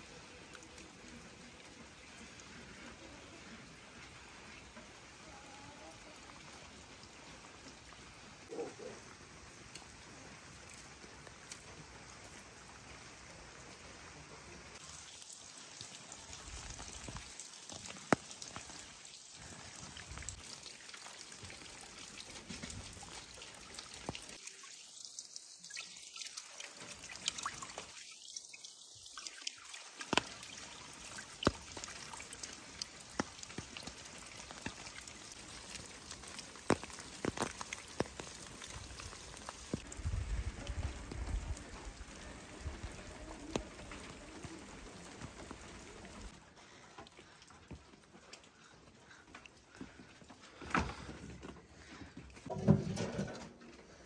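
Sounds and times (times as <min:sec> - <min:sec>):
rain falling: 0:00.0 - 0:51.1
water pouring onto stones: 0:14.8 - 0:50.6.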